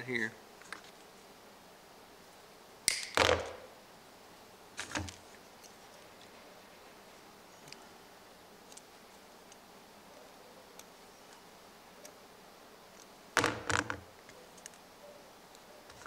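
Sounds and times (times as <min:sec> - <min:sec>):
small clicks and rustles of wire: 0:00.6 - 0:01.1, 0:07.6 - 0:07.9, 0:08.6 - 0:09.6, 0:12.9 - 0:14.9.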